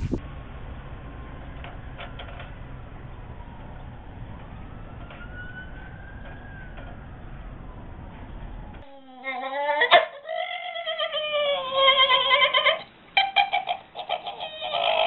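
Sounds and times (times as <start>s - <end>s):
road traffic rumble: 0.0s - 8.9s
faint siren wail: 0.2s - 9.2s.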